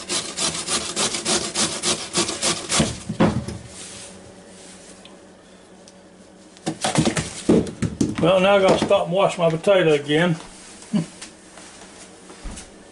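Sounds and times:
potato rasping on metal grater: 0:00.0 - 0:02.8.

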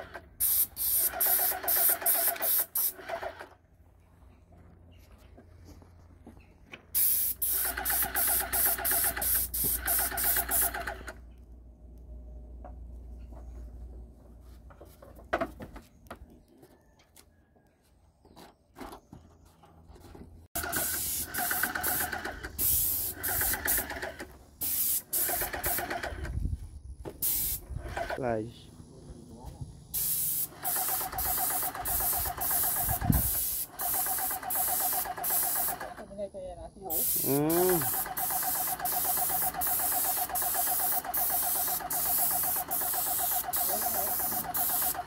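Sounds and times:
paint sprayer hissing: 0:00.0 - 0:03.4, 0:06.9 - 0:11.1, 0:20.6 - 0:26.2, 0:27.2 - 0:28.2, 0:29.9 - 0:36.2, 0:36.8 - 0:45.0.

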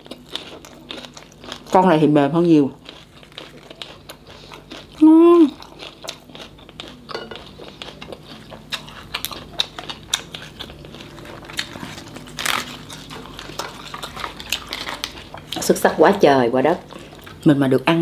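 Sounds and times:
crunchy chewing: 0:00.0 - 0:16.0
person humming: 0:05.0 - 0:05.6
lettuce rustling: 0:07.9 - 0:16.1.

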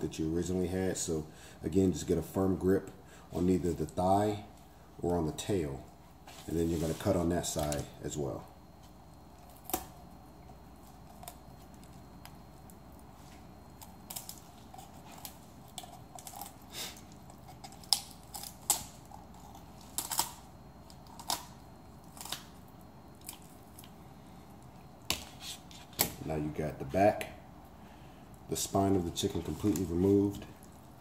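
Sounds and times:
shears crunching through bones: 0:09.4 - 0:24.0.

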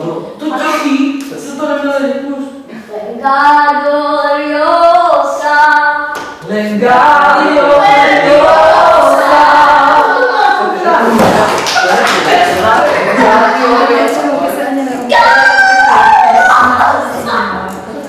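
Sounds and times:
voices singing long notes: 0:03.2 - 0:11.3.

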